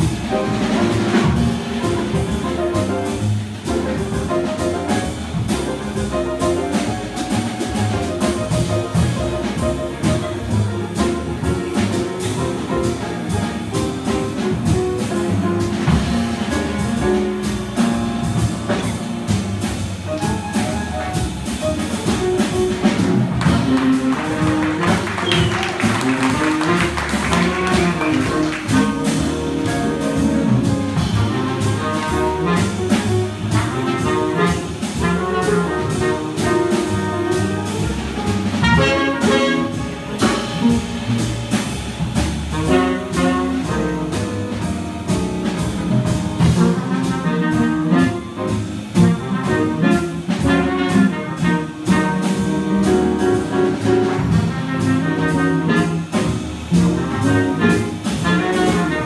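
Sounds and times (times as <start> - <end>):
horn playing lead line: 0.0 - 19.4, 20.1 - 41.6, 42.5 - 59.0
drums with cymbal time: 0.0 - 59.0
upright bass: 0.0 - 59.0.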